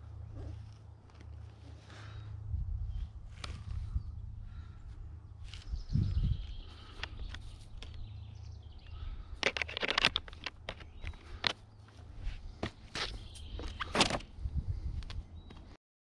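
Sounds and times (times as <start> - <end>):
low steady rumble: 0.0 - 9.4
metal bindings clicking: 9.4 - 11.6.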